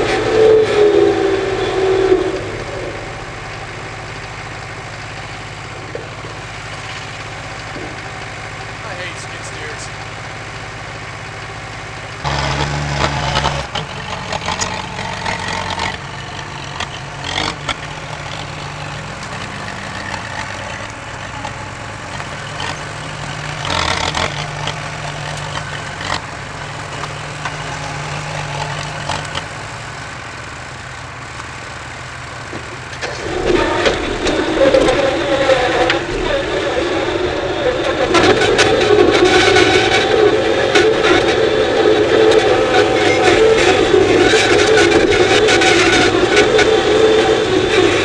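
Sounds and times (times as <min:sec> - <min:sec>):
crawler dozer working: 0:00.0 - 0:48.0
skid steer diesel engine idling: 0:00.0 - 0:48.0.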